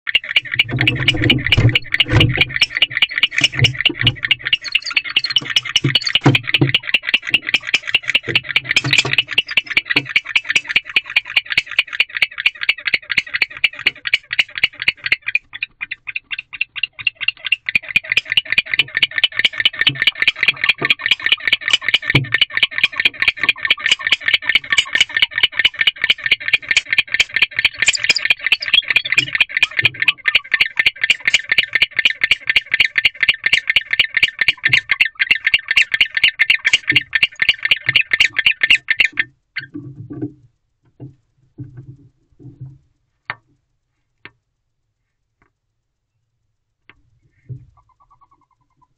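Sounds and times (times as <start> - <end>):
owl chirping call: 0.2 - 11.7, 27.4 - 31.6, 47.8 - 48.9
low knocks: 0.8 - 2.6.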